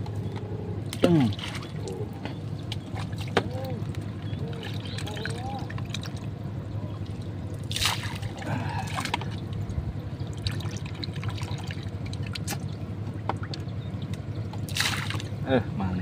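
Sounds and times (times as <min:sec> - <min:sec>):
steady low hum: 0:00.0 - 0:16.0
water splashing and trickling: 0:00.8 - 0:15.6.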